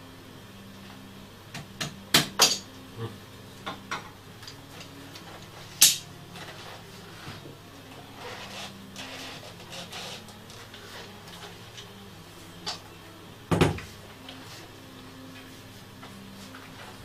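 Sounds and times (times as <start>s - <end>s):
loud knock on workbench: 13.5s - 13.9s.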